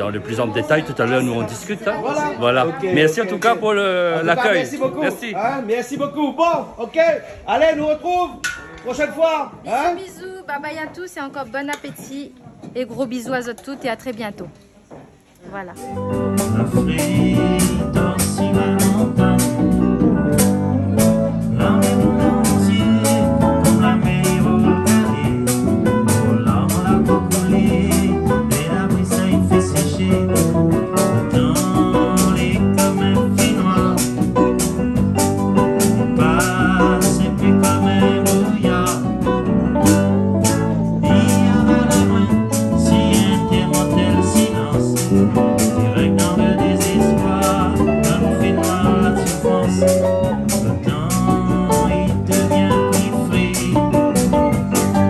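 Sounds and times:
guitars: 0:15.7 - 0:55.0
hand drums: 0:15.7 - 0:55.0
electric bass: 0:15.8 - 0:55.0
man singing: 0:15.9 - 0:55.0.

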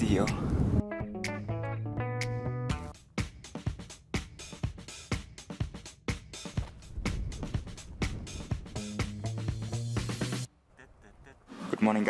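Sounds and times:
drum beat: 0:03.0 - 0:10.5.

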